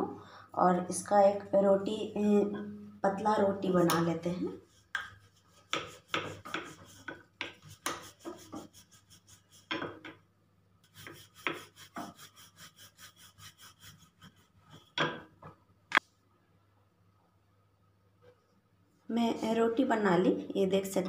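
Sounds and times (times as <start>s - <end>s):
rolling pin rolling dough: 3.6s - 10.2s, 10.9s - 15.4s.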